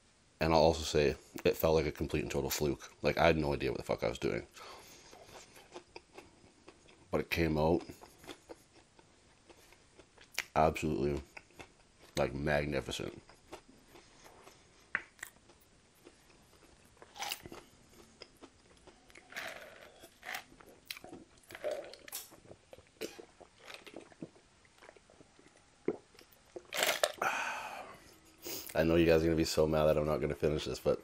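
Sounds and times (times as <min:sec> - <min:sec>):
chewing and crunching: 0:04.8 - 0:12.3, 0:13.0 - 0:27.2.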